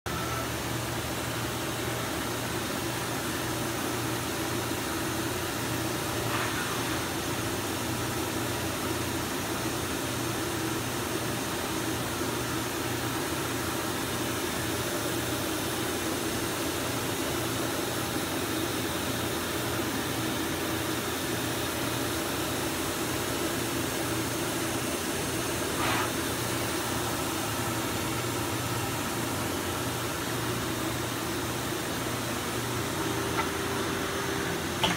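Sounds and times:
machining center humming: 0:00.1 - 0:08.3.

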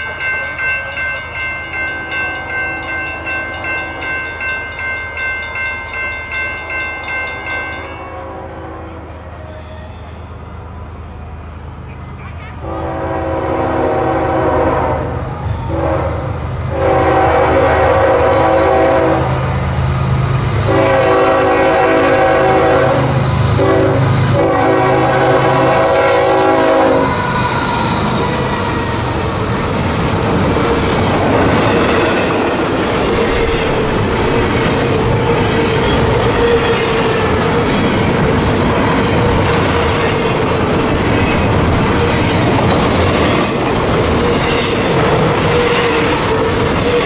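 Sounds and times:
locomotive air horn blasts: 0:08.0 - 0:10.2, 0:12.6 - 0:19.3, 0:20.7 - 0:27.4
train wheels clacking over rails: 0:20.6 - 0:47.0.

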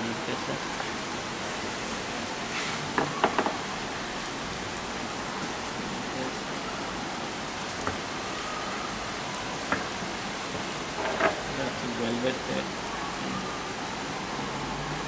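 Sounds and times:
steady hiss: 0:00.0 - 0:04.8.

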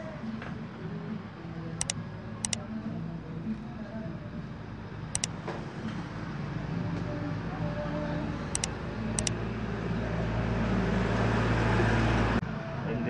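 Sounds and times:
vehicle engine running: 0:04.2 - 0:12.4
short high ticks: 0:08.6 - 0:09.3.

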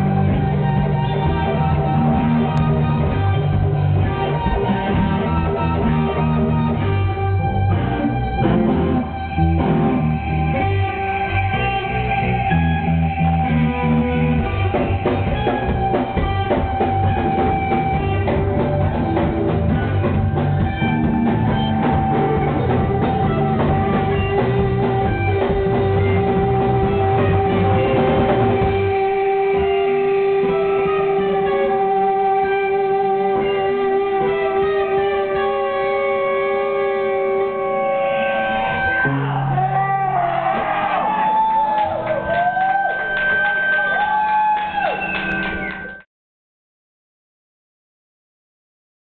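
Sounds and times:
drum kit: 0:00.0 - 0:35.9
bass guitar: 0:00.0 - 0:46.0
electric guitar: 0:00.0 - 0:46.0.

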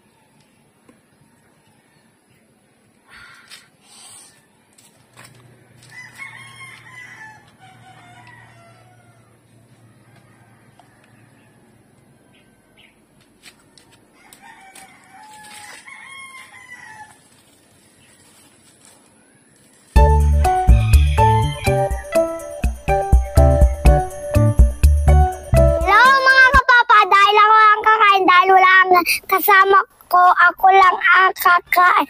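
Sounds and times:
rooster crowing: 0:05.8 - 0:12.8, 0:13.6 - 0:17.3, 0:20.1 - 0:23.4
jingly background music: 0:20.0 - 0:26.6.

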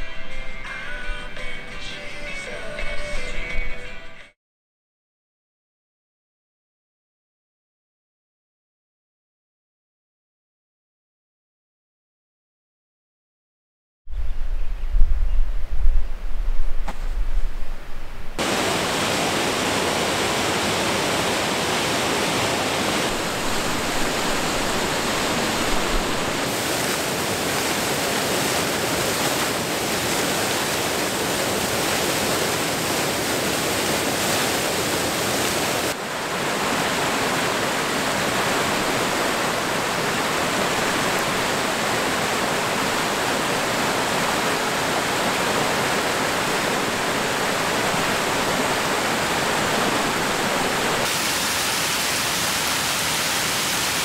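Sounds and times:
waterfall rushing over boulders: 0:18.4 - 0:54.0.

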